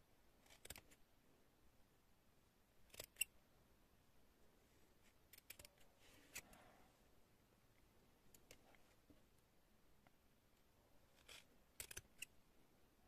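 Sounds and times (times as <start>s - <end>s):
scissors snipping yarn: 0.4s - 1.0s, 2.9s - 3.3s, 5.3s - 6.5s, 11.2s - 12.3s.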